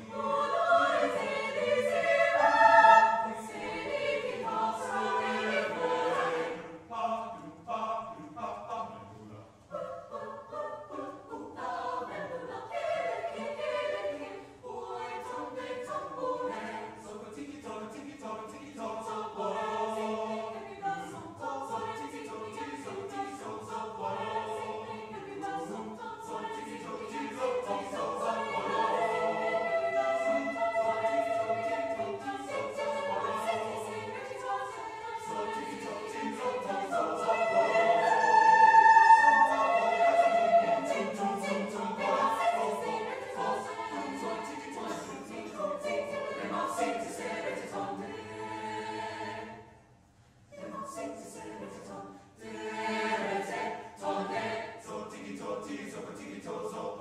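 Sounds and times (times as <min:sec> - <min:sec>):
mixed choir singing: 0:00.0 - 0:49.8, 0:50.5 - 0:57.0.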